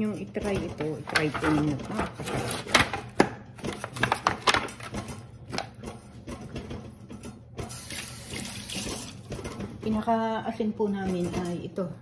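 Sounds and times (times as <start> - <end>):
foil pan crinkling: 0.8 - 5.0.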